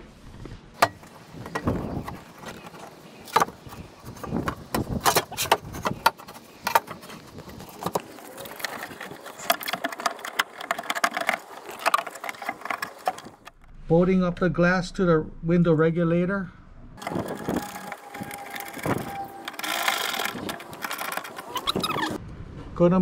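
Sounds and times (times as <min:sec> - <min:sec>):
small clicks and rattles: 0:00.9 - 0:13.6, 0:17.0 - 0:22.2.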